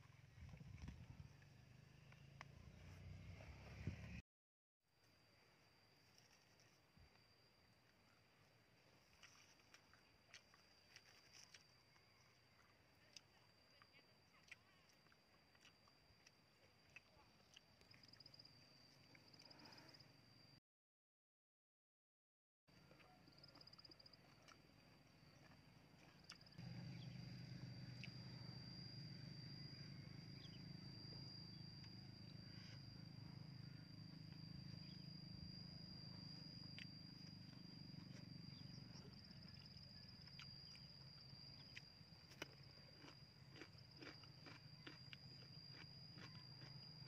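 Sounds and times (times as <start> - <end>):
low steady hum: 22.8 - 47.0
insect buzzing: 26.5 - 47.0
faint eating clicks: 41.6 - 46.8.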